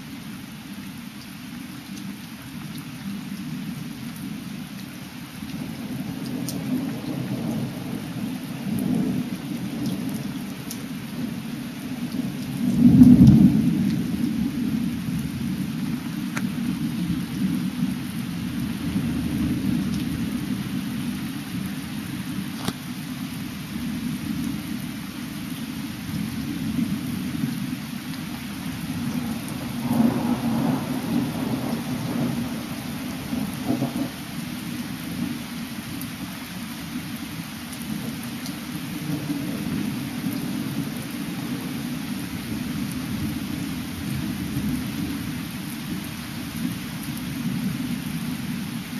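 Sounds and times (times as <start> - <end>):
steady rain: 0.0 - 48.9
thunder rumbling: 28.6 - 34.2.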